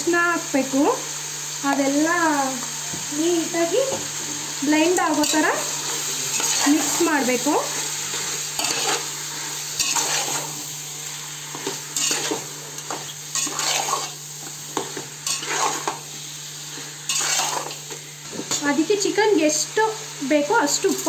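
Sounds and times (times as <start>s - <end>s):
chicken sizzling in oil: 0.0s - 21.0s
metal spatula scraping pot: 8.6s - 9.1s, 9.8s - 10.5s, 12.0s - 14.2s, 15.2s - 16.0s, 17.1s - 17.8s.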